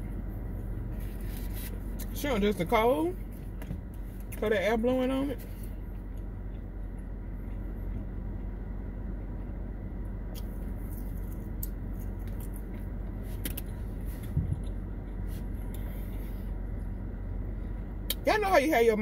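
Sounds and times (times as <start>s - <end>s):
car air conditioning fan blowing: 0.0s - 19.0s
engine idling hum: 0.0s - 19.0s.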